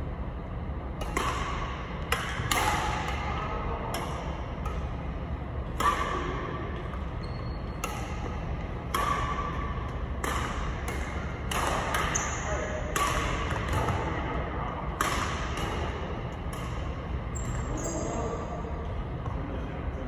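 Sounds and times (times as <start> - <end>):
badminton racket hitting shuttlecock: 1.0 - 5.0, 5.6 - 7.1, 7.8 - 14.2, 15.0 - 17.6.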